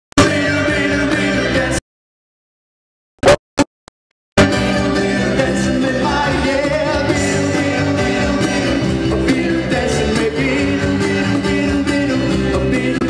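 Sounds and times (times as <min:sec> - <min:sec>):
lead vocals: 0:00.2 - 0:01.8, 0:04.5 - 0:13.0
live pop-rock band: 0:00.2 - 0:01.8, 0:04.4 - 0:13.0.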